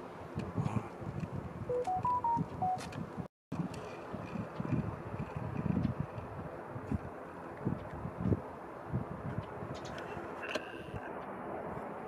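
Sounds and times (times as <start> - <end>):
distant city traffic rumble: 0.0 - 12.0
high chirp: 1.7 - 2.8
wind thump on microphone: 7.6 - 8.4.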